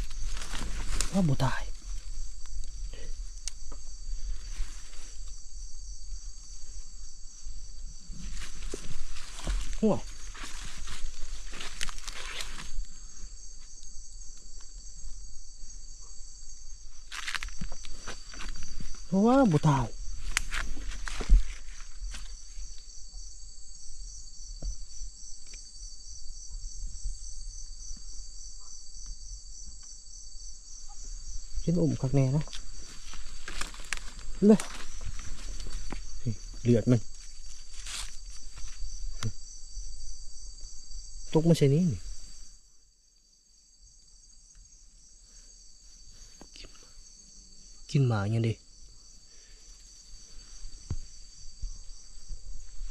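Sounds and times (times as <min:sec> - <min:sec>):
brush rustling: 0:00.0 - 0:02.2, 0:06.6 - 0:12.8, 0:32.5 - 0:39.2
crickets trilling: 0:00.0 - 0:52.9
thump: 0:24.6 - 0:24.8.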